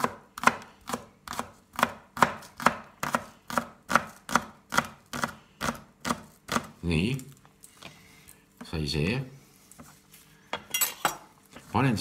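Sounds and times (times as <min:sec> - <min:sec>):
knife chopping on wooden board: 0:00.0 - 0:06.7.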